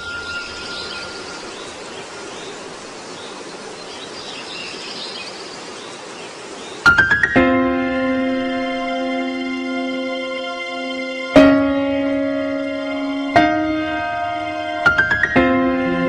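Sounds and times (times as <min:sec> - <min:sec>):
faint high chirps: 0:00.0 - 0:02.6
background hiss: 0:00.0 - 0:16.0
music with bright notes: 0:06.9 - 0:16.0.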